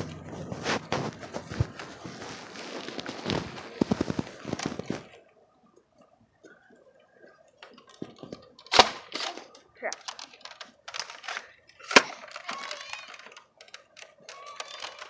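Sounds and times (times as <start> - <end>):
phone rustling and knocking: 0.0 - 5.1.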